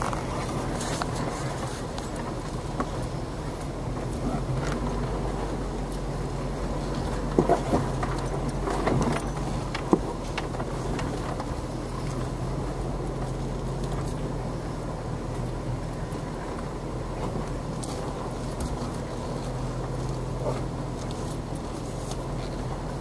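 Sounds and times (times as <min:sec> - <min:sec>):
car engine running at low speed: 0:00.0 - 0:23.0
vehicle body rattling and knocking: 0:06.7 - 0:13.2.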